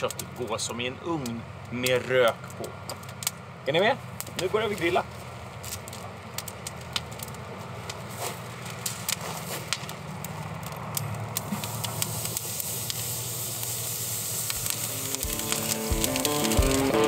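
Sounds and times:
charcoal fire crackling and popping: 0.0 - 17.0
steak sizzling on grill: 9.2 - 17.0.

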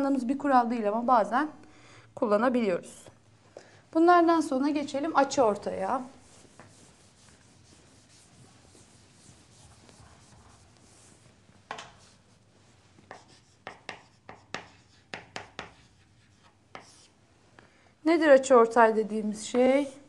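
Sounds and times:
chalk scratching on blackboard: 5.9 - 12.4, 13.1 - 17.2
chalk tapping on blackboard: 6.2 - 11.1, 13.0 - 17.1.

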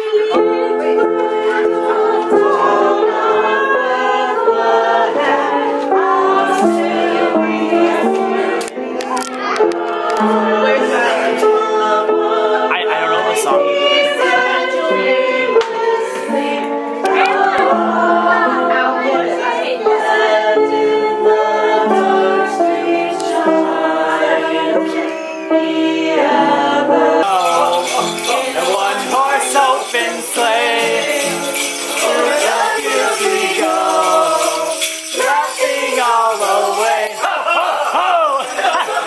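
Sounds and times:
people singing carol together: 0.0 - 39.0
bright jingling rhythm: 27.2 - 39.0.

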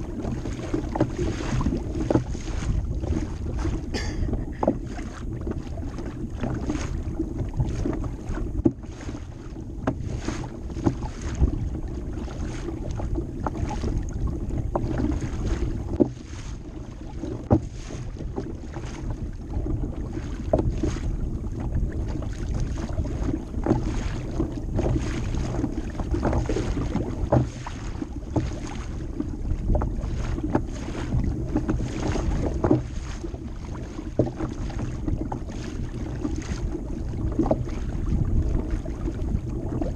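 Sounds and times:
water splashing against kayak hull: 0.0 - 39.9
wind noise on microphone: 0.0 - 39.9.

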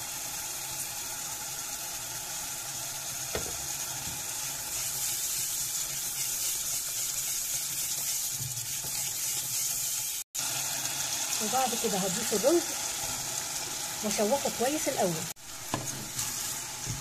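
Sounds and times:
sauce sizzling in pot: 0.0 - 17.0
spatula stirring: 4.0 - 10.2, 15.7 - 17.0.

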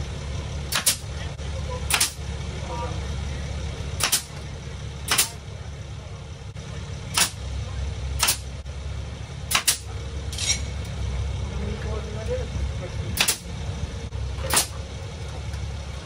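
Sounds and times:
nail gun firing: 0.7 - 1.0, 1.9 - 2.2, 4.0 - 4.3, 5.1 - 5.4, 7.1 - 7.4, 8.2 - 8.5, 9.5 - 9.9, 13.2 - 13.4, 14.5 - 14.8.

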